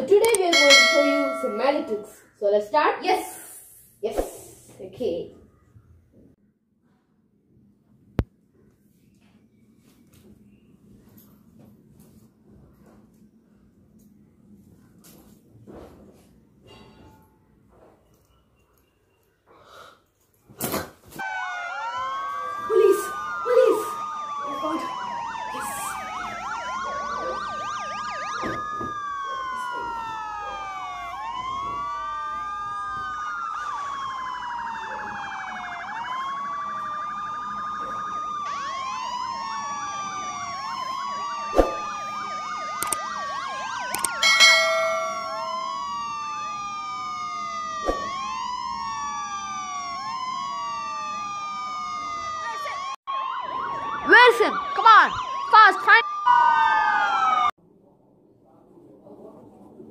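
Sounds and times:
wailing siren: 0:00.5 - 0:02.0, 0:21.2 - 0:57.6.

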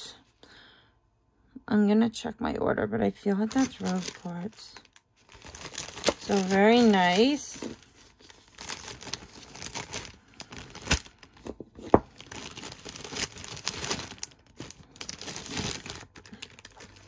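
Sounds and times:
plastic bag crinkling: 0:03.4 - 0:17.0.

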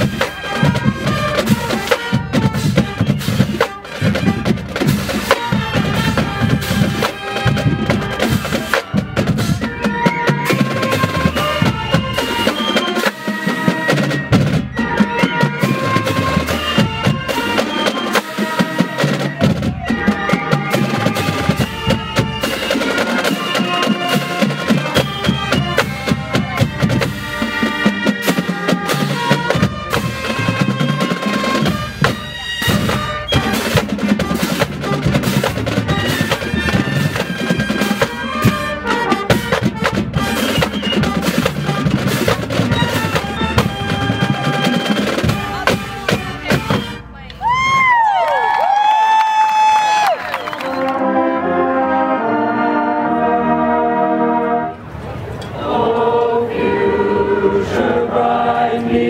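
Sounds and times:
marching band drumline: 0:00.0 - 0:53.6
sustained melody notes: 0:50.8 - 0:59.0.

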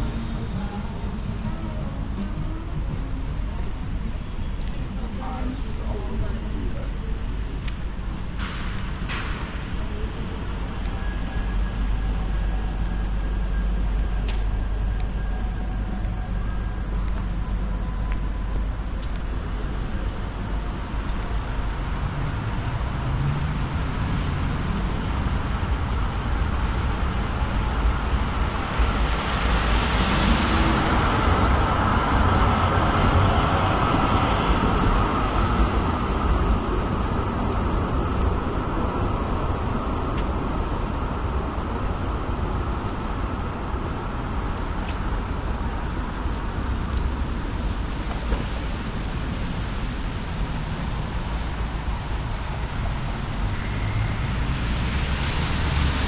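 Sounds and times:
heavy vehicle engine rumbling: 0:00.0 - 0:56.0
road traffic: 0:00.0 - 0:56.0
faint high squeals: 0:10.9 - 0:16.7, 0:19.3 - 0:20.1.

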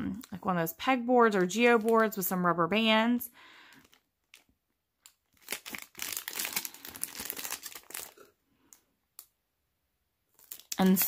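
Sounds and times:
plastic bag crinkling: 0:01.3 - 0:02.4, 0:03.6 - 0:09.3, 0:10.3 - 0:11.0.

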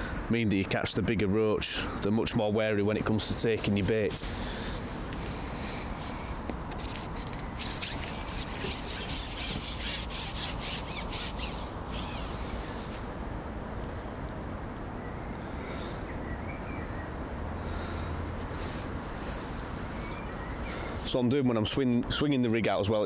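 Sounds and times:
fishing pole sections scraping: 0:06.0 - 0:13.1.

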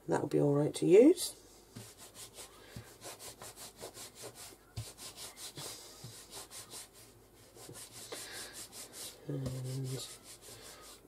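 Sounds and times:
fingers rubbing clay on a mat: 0:01.7 - 0:11.0.

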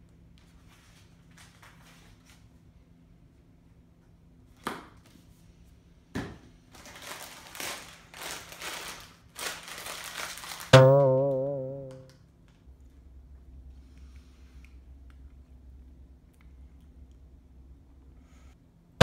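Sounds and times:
snack bag crinkling: 0:06.7 - 0:10.8.

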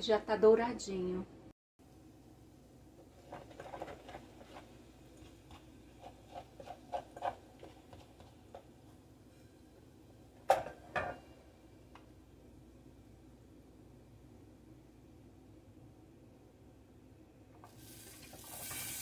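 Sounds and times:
plastic spatula scraping a pot: 0:03.0 - 0:08.7.

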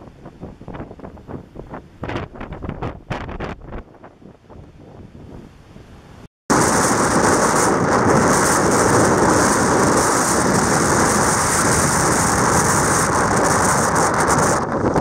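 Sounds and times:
wind buffeting microphone: 0:00.0 - 0:15.0
heavy surf: 0:05.2 - 0:15.0.

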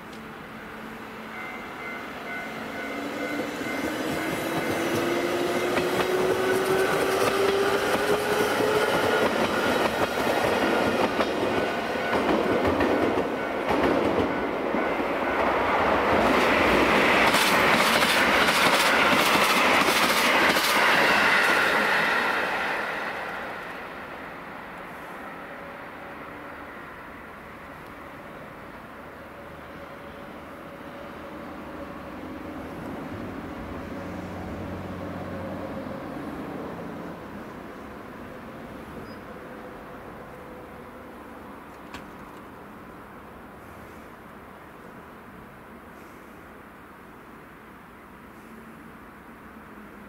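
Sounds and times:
train wheels clattering over rail joints: 0:17.2 - 0:21.6.

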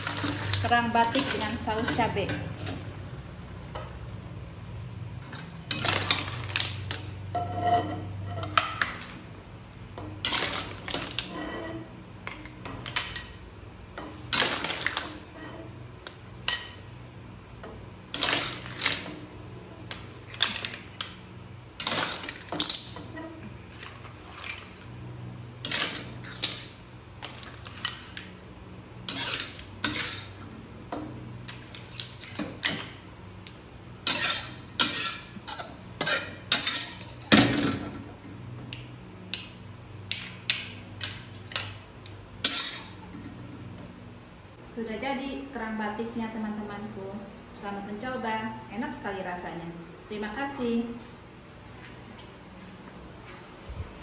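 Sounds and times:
spatula scraping a wok: 0:00.0 - 0:02.2, 0:06.9 - 0:08.6, 0:10.2 - 0:12.0, 0:25.6 - 0:28.3, 0:29.0 - 0:30.5, 0:42.4 - 0:43.1.

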